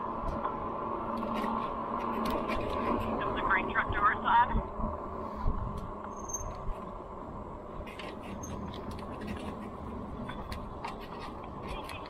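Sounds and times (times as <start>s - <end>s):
rolling road noise: 0.0s - 12.0s
wind: 0.0s - 12.0s
brief high squeaks: 6.1s - 6.6s.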